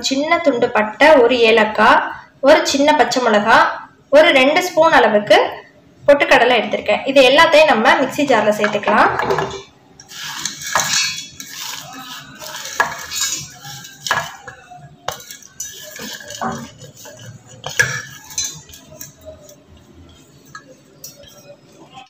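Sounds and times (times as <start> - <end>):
steel plate clinking on jar rim: 10.0 - 19.6.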